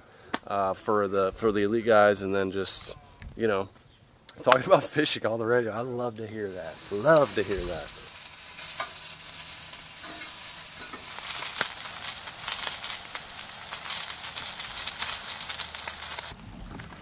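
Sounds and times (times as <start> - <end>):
food sizzling in a skillet: 6.3 - 16.4.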